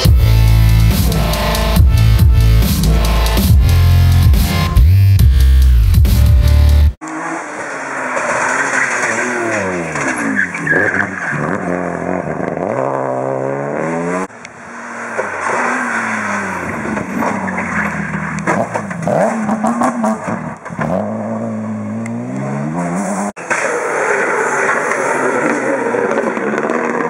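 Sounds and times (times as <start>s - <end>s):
rally cars passing at speed: 7.0s - 27.0s.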